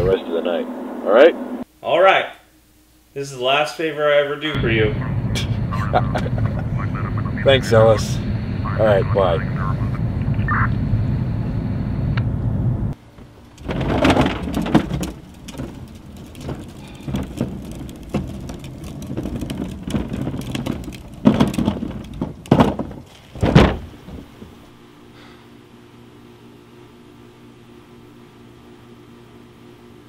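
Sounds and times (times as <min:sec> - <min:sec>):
car road and engine rumble: 0:04.6 - 0:24.8
noisy swells and knocks: 0:13.0 - 0:24.8.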